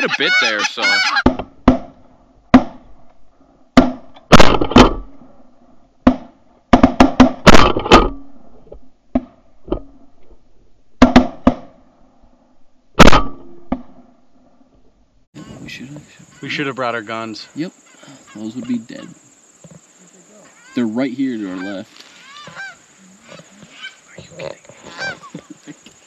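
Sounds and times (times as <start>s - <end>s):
shotgun shots: 3.8s - 5.1s, 13.0s - 14.0s.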